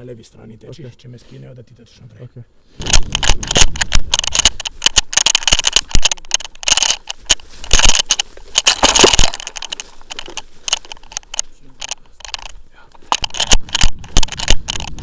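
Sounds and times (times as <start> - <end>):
branches scraping: 2.6 - 15.0
running footsteps crunching leaves: 2.7 - 15.0
twigs crackling: 2.7 - 15.0.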